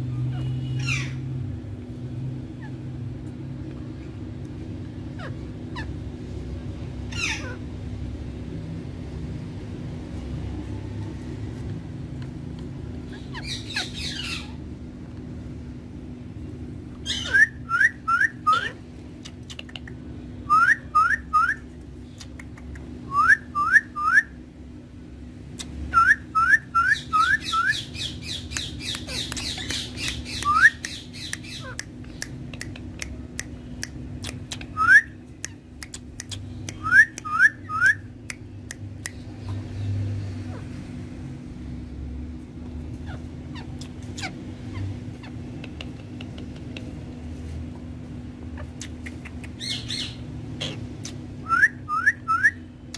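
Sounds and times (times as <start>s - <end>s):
parakeets squawking: 0.0s - 1.4s, 5.0s - 6.1s, 7.1s - 7.8s, 13.0s - 14.7s, 17.0s - 19.4s, 25.9s - 31.9s, 42.9s - 46.4s, 48.5s - 52.6s
faint high bird chatter: 13.0s - 14.7s, 26.0s - 32.8s.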